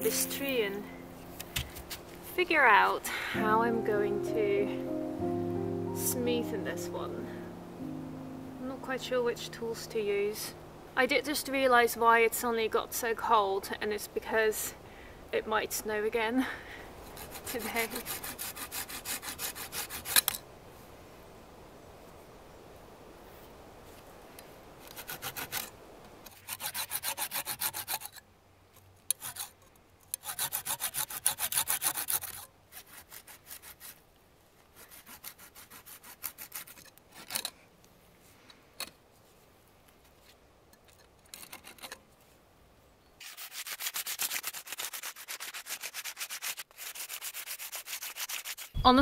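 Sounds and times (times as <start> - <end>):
blade scraping a branch: 1.2 - 2.4, 17.0 - 20.4, 24.8 - 28.2, 29.1 - 34.0, 34.6 - 37.6, 40.1 - 42.2, 43.2 - 48.8
sandpaper rubbing on wood: 17.2 - 20.3, 24.9 - 25.7, 26.3 - 28.1, 30.2 - 34.0, 34.7 - 36.9, 43.2 - 48.8.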